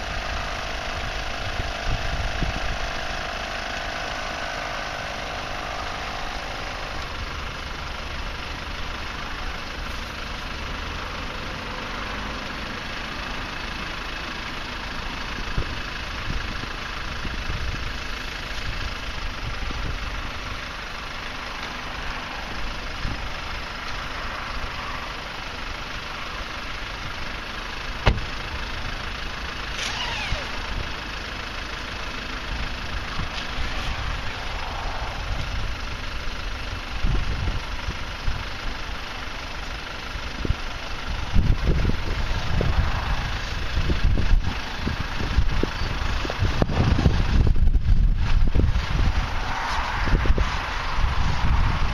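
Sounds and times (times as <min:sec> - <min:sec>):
electric air compressors running: 0:00.0 - 0:10.1
sharp knock: 0:28.0 - 0:28.3.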